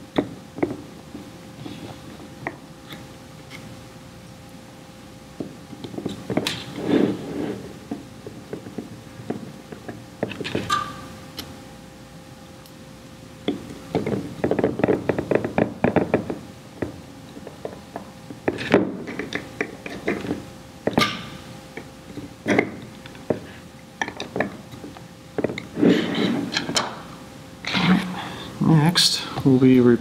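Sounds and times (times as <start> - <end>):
tools and parts knocking: 13.5 - 21.2, 24.0 - 24.6.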